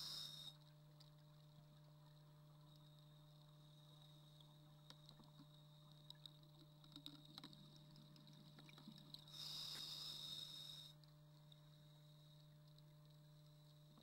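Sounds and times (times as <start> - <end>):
regulator breath hiss: 0.0 - 0.6, 9.3 - 11.0
faint low hum: 0.0 - 14.0.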